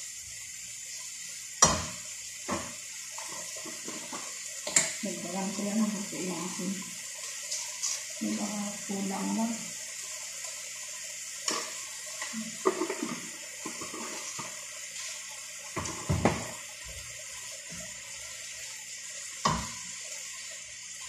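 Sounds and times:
meat sizzling in a frying pan: 0:00.0 - 0:21.0
utensil scraping a pan: 0:12.6 - 0:15.1.

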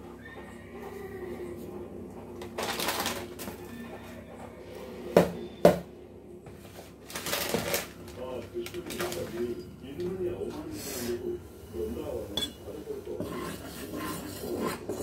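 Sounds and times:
milk pot boiling: 0:06.5 - 0:15.0.

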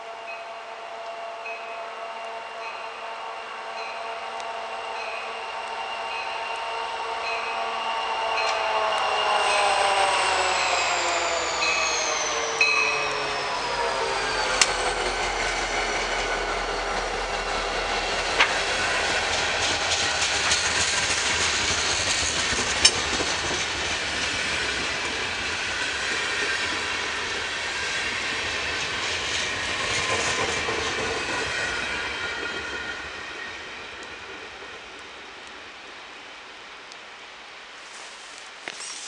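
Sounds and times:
train wheels clattering on rails: 0:08.4 - 0:35.7.

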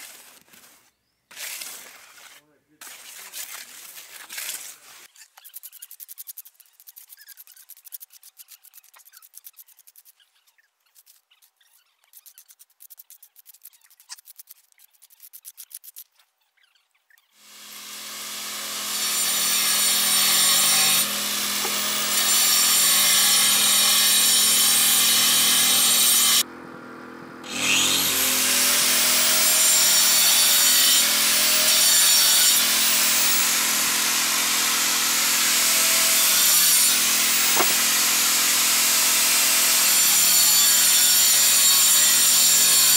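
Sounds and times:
trowel scraping concrete: 0:00.0 - 0:16.3, 0:19.0 - 0:26.4, 0:35.8 - 0:38.6
angle grinder cutting brick: 0:17.4 - 0:26.5, 0:27.4 - 0:42.9.

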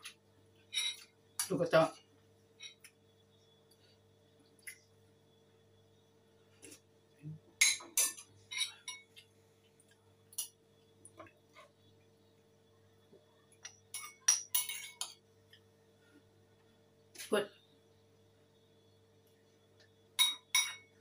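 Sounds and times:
faint hum: 0:00.0 - 0:21.0
spoon clinking against bowl: 0:07.6 - 0:09.1, 0:13.6 - 0:15.2, 0:20.2 - 0:20.9.

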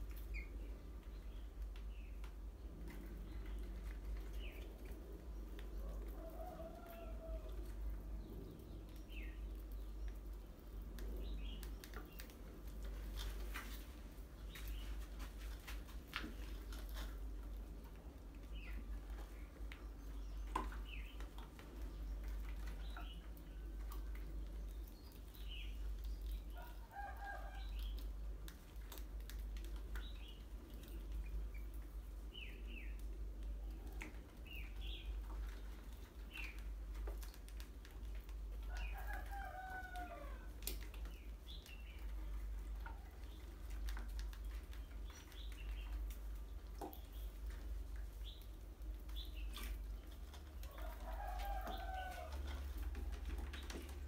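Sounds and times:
rats scurrying on tiled floor: 0:01.5 - 0:54.0
rooster crowing: 0:50.7 - 0:52.5.

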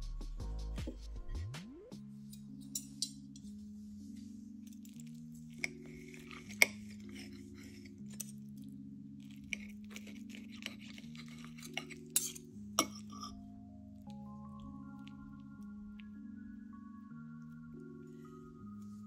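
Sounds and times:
soft background music: 0:00.0 - 0:19.0
knife and fork scraping plate: 0:05.5 - 0:08.4, 0:09.4 - 0:13.4.

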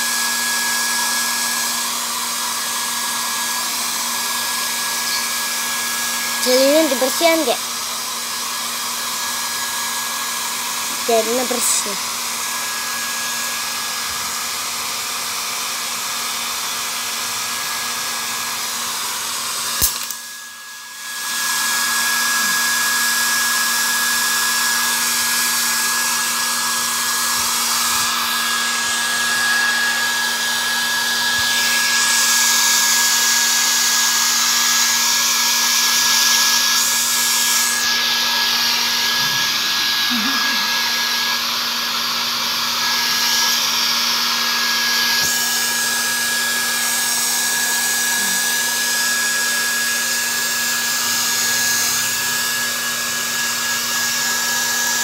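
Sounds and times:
hair dryer blowing: 0:00.0 - 0:55.0
hair dryer switch click: 0:19.8 - 0:20.2.

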